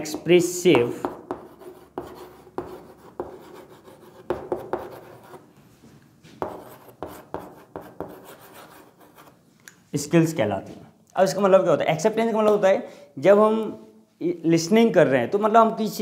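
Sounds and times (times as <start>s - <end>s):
chalk scratching on chalkboard: 1.0s - 5.4s, 6.4s - 9.4s.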